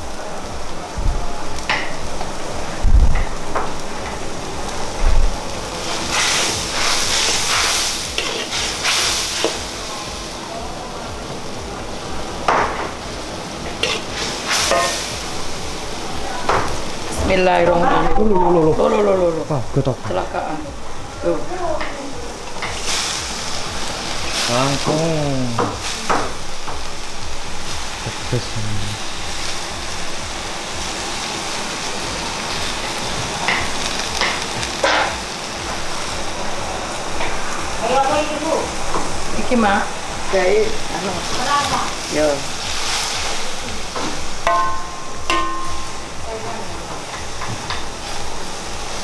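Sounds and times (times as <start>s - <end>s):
food sizzling: 0.0s - 49.0s
metal spatula scraping a wok: 5.8s - 9.6s, 13.7s - 15.2s.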